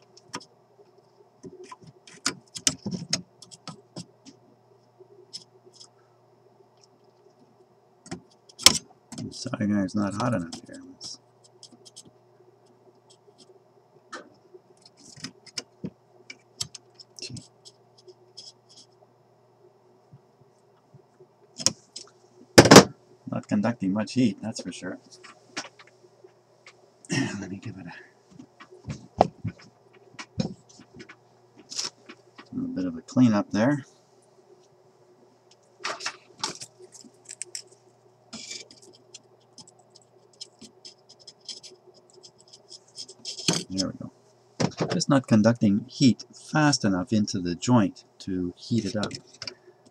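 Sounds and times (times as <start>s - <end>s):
faint steady hum: 0.0s - 49.9s
tools scraping and clicking: 38.4s - 43.9s.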